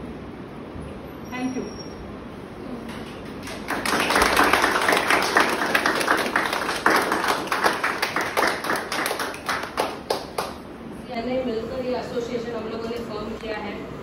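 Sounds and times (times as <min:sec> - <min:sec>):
children clapping: 0:03.0 - 0:10.6.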